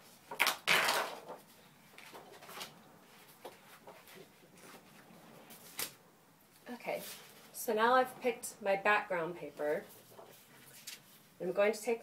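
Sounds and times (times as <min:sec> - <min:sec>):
paper rustling: 0:10.0 - 0:11.2.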